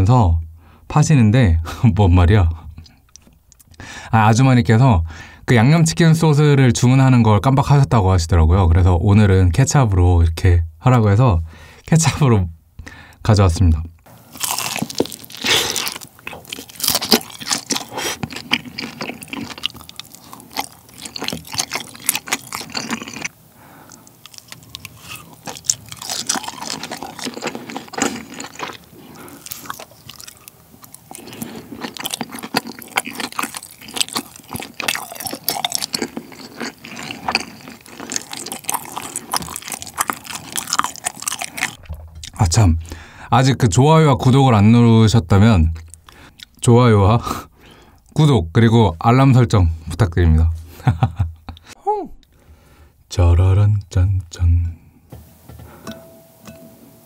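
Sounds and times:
man chewing food: 14.0s - 43.2s, 45.8s - 46.6s.

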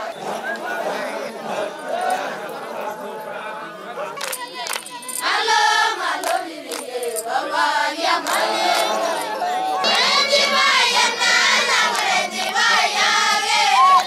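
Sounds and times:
hand claps: 4.2s - 5.4s, 6.2s - 7.4s, 8.2s - 10.2s, 11.8s - 12.8s, 13.8s - 14.0s
girls singing together: 4.4s - 14.0s.

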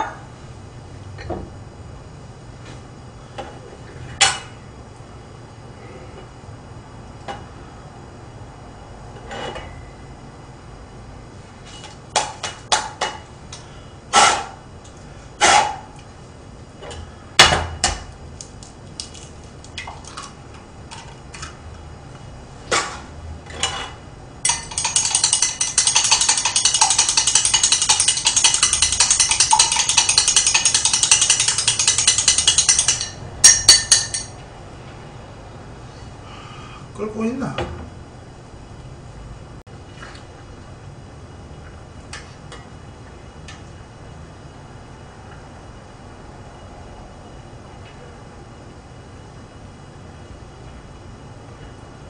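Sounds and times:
ratcheting rattle: 24.4s - 34.3s
tableware clinking: 24.4s - 34.4s.

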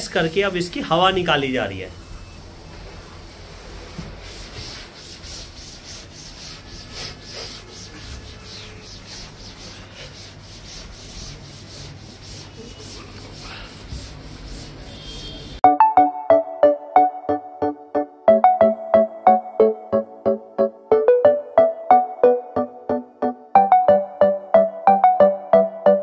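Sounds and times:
cloth rubbing on vinyl flooring: 0.0s - 15.6s.

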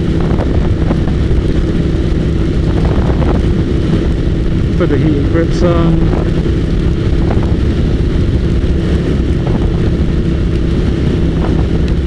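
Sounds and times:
motorcycle engine cruising: 0.0s - 12.0s.

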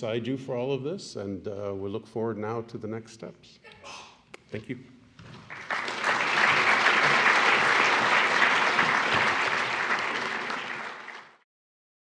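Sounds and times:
audience applauding: 5.4s - 11.4s.

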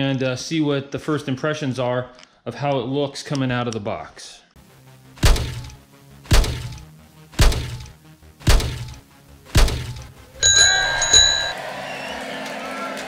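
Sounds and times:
bright ringing chime: 10.4s - 11.6s.

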